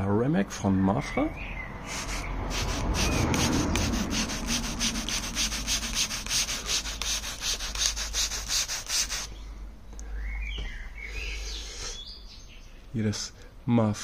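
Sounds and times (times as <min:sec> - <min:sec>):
spray bottle squirting: 0:02.1 - 0:09.3
faint bird chirp: 0:09.3 - 0:13.0.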